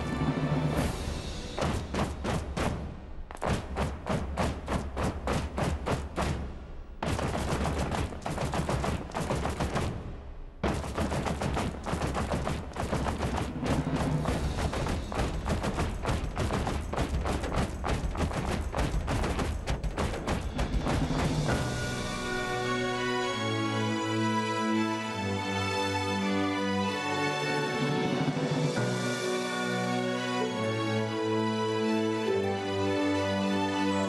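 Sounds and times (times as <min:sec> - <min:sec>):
rapid sharp percussive strikes: 0:00.8 - 0:22.6.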